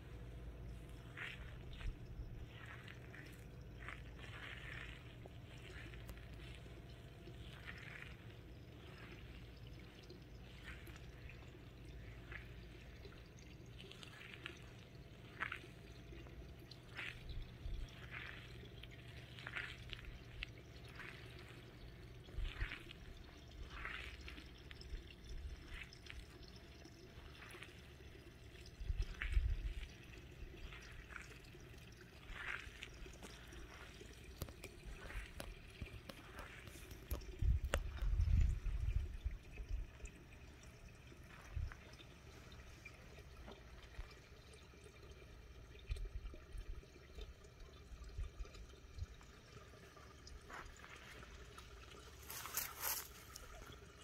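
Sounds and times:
low steady hum: 0:00.0 - 0:54.0
frogs croaking: 0:00.7 - 0:28.3, 0:32.2 - 0:38.0, 0:39.9 - 0:44.1.

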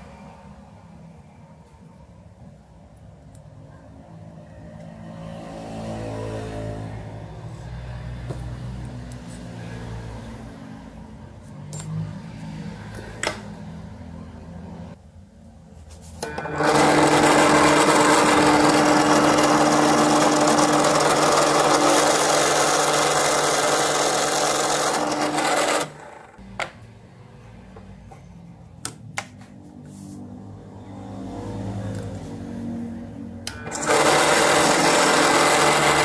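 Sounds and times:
drill press motor humming: 0:16.2 - 0:26.4, 0:33.5 - 0:36.0.

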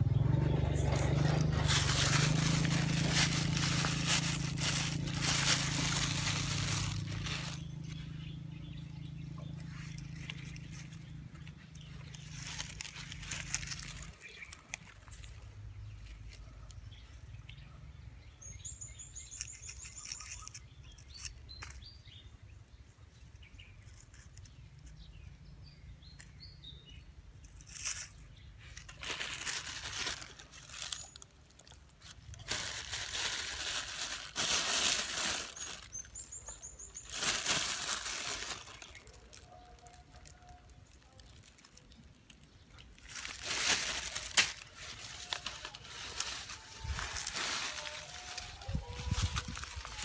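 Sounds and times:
small birds chirping: 0:00.0 - 0:50.0
plastic bag rustling: 0:00.4 - 0:08.0, 0:09.6 - 0:16.4, 0:27.6 - 0:50.0
grain shaken onto dry ground: 0:00.8 - 0:08.0, 0:28.8 - 0:39.4, 0:43.0 - 0:50.0.

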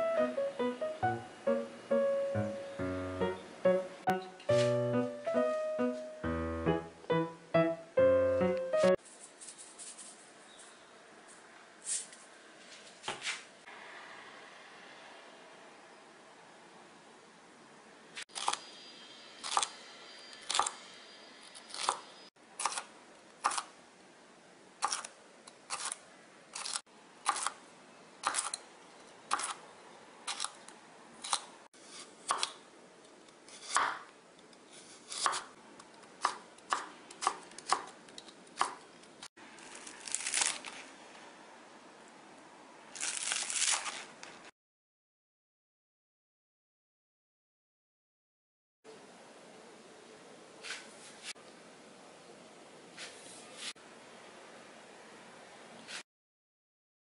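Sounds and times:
knife cutting on wooden board: 0:35.0 - 0:35.5.

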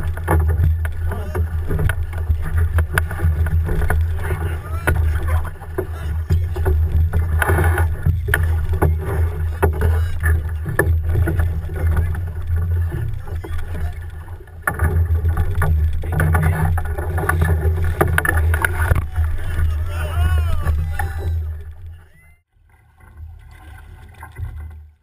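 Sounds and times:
paddles splashing and knocking: 0:00.0 - 0:25.0.

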